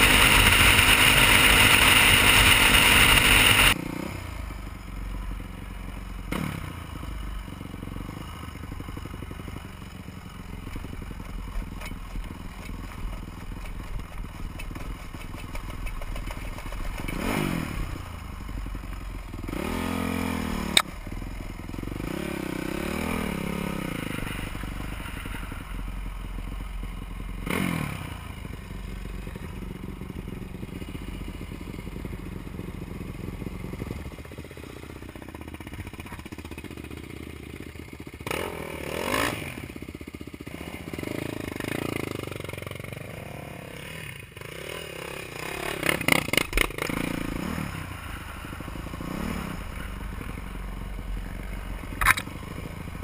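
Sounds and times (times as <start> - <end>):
motorcycle engine revving: 0.0 - 53.0
sharp click: 20.7 - 20.9, 52.0 - 52.3.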